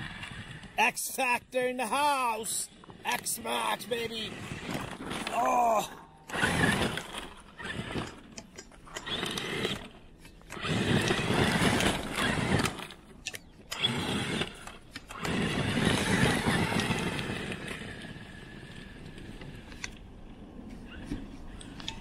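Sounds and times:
tires churning through snow: 0:00.0 - 0:00.8, 0:02.6 - 0:13.1, 0:13.7 - 0:22.0
electric motor whining: 0:06.2 - 0:13.1, 0:13.7 - 0:20.0.

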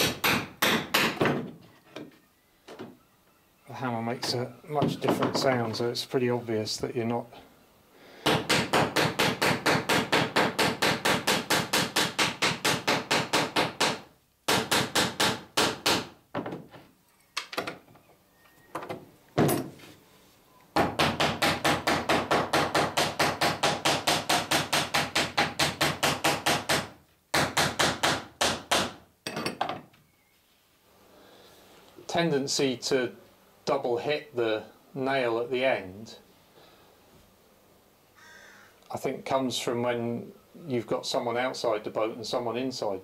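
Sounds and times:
hammer riveting metal nails: 0:00.0 - 0:01.6, 0:08.2 - 0:16.6.

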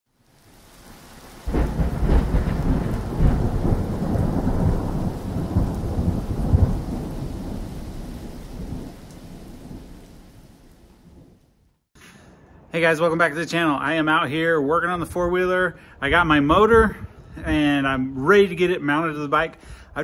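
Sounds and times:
rolling thunder rumble: 0:00.7 - 0:11.4
thunder crack: 0:01.2 - 0:11.4.

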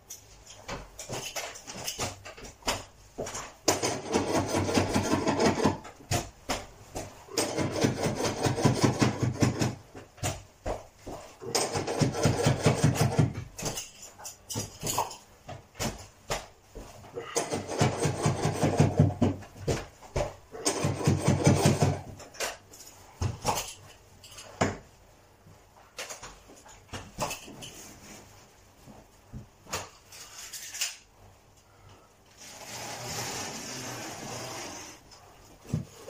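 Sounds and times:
tool scraping carpet: 0:32.4 - 0:35.1.

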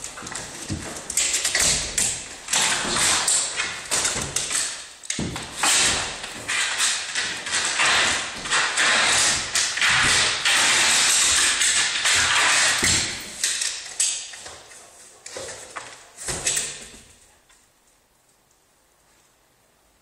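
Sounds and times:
dog claws scraping glass: 0:00.3 - 0:14.3.

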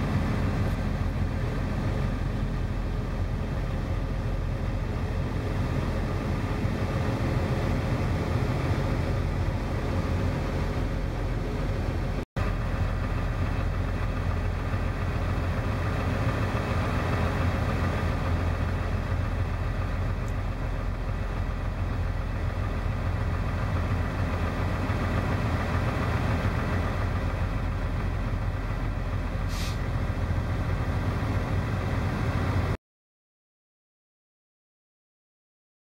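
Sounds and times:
diesel truck engines running: 0:00.0 - 0:32.8
short high hiss: 0:29.5 - 0:29.9.

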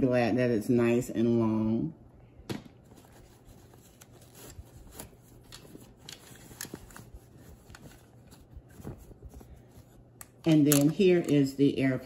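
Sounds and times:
cloth pouch rustling: 0:02.8 - 0:10.2.

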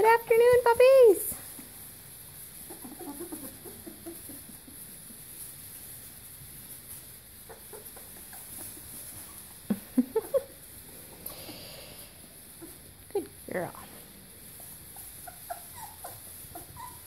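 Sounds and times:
puppies squealing: 0:02.6 - 0:04.9, 0:07.4 - 0:10.6, 0:14.5 - 0:17.0
puppies whimpering and squeaking: 0:02.6 - 0:05.3, 0:07.3 - 0:10.7, 0:12.5 - 0:13.0, 0:13.6 - 0:17.0.

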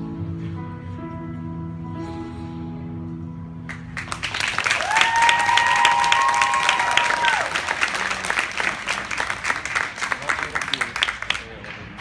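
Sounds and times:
crowd applauding: 0:03.7 - 0:12.0
high-pitched cheer: 0:04.6 - 0:08.1.

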